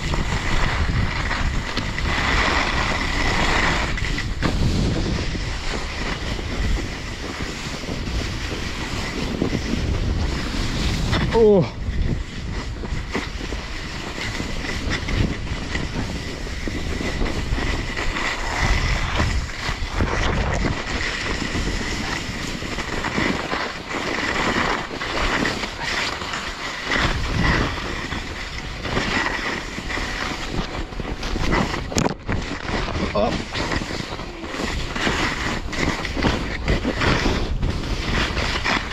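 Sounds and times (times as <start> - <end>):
snowblades scraping over snow: 0.0 - 38.9
wind buffeting microphone: 0.0 - 38.9.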